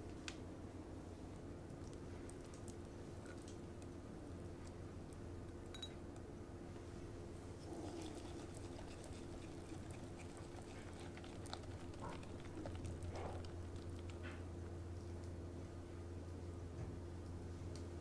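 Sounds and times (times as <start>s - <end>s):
low hum: 0.0s - 18.0s
whisk swishing in batter: 7.7s - 13.5s.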